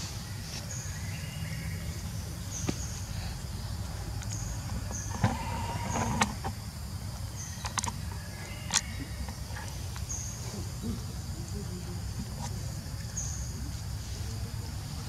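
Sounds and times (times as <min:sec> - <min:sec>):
sharp clicks: 0:07.6 - 0:09.4.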